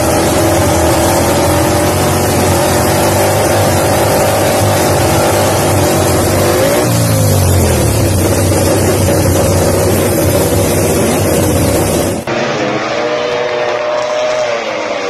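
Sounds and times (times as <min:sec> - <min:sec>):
motorcycle engine fast idle: 0:01.3 - 0:12.2.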